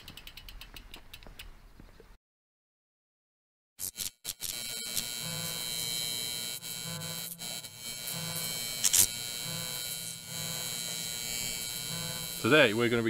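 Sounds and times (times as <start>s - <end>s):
neon light buzzing hum: 3.8s - 13.0s
stuttering electric crackles: 3.8s - 13.0s.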